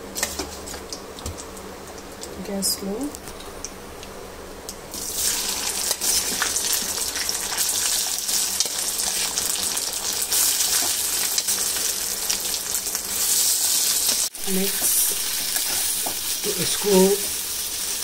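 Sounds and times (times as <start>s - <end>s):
food sizzling in hot ghee: 4.9s - 18.0s.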